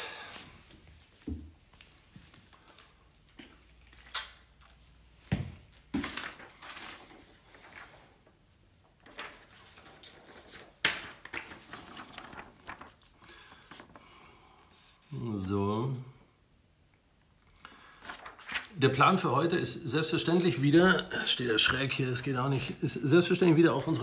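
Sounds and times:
paper rustling: 0:05.8 - 0:14.1, 0:18.0 - 0:19.0.

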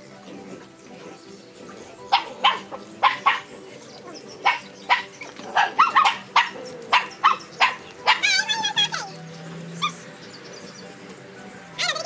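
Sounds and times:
dog barking: 0:02.1 - 0:03.5, 0:04.4 - 0:08.4.

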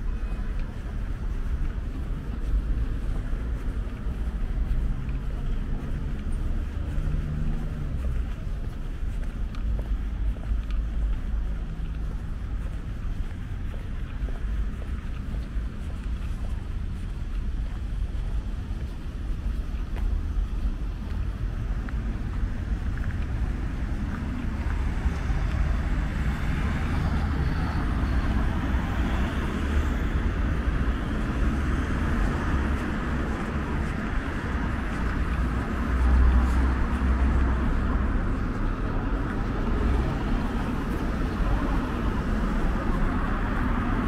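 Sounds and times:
cars passing on road: 0:00.0 - 0:44.0.

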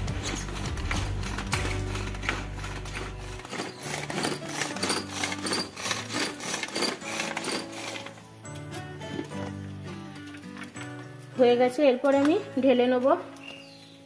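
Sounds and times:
vegetable chopper blades rattling: 0:00.0 - 0:08.2.

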